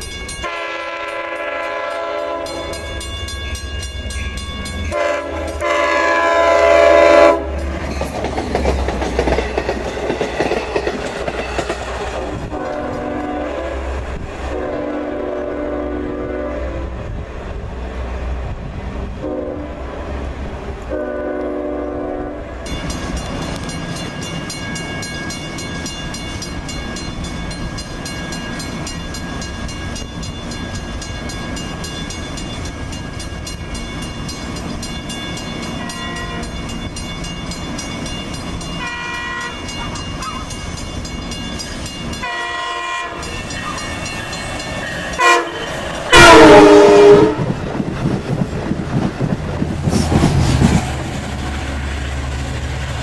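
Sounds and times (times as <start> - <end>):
wheels clicking over rail track: 0.0 - 13.3, 22.6 - 53.0
train rushing past: 0.0 - 53.0
train horn blasts: 0.4 - 3.0, 4.9 - 7.6, 12.3 - 17.1, 19.2 - 19.9, 20.9 - 22.7, 35.8 - 36.6, 38.8 - 40.4, 42.2 - 44.0, 45.1 - 47.6.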